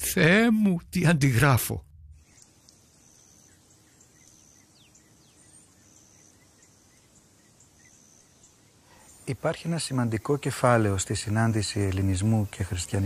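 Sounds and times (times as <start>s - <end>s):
bird chirps: 2.1s - 10.5s
insect chirping trills: 2.1s - 13.0s.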